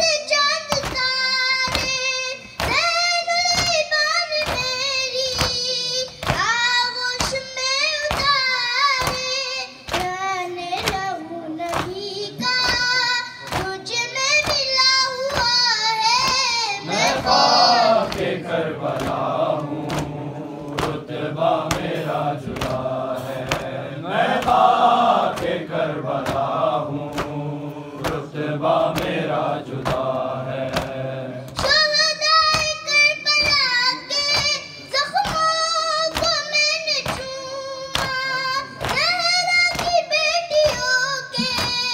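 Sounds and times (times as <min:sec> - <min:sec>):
hands slapping chests: 0:00.7 - 0:06.5, 0:07.2 - 0:10.2, 0:10.8 - 0:32.8, 0:33.4 - 0:41.9
men and boys chanting chorus: 0:16.2 - 0:31.7.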